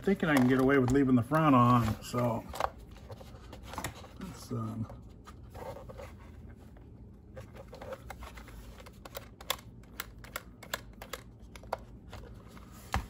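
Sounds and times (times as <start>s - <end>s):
hands handling plastic chassis: 0.0s - 4.6s.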